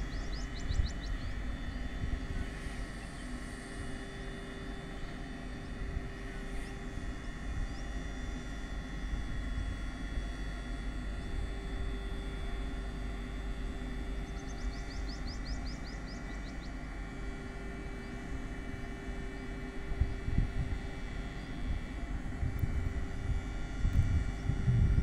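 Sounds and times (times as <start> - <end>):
bird chirping: 0.1 - 1.4, 14.3 - 16.8.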